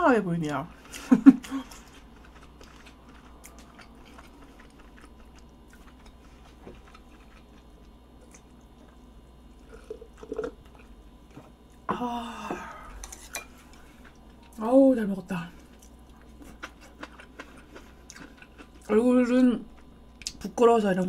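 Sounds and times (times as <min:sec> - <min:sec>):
chewing with mouth clicks: 0:01.6 - 0:11.0, 0:15.6 - 0:19.0, 0:19.7 - 0:20.5.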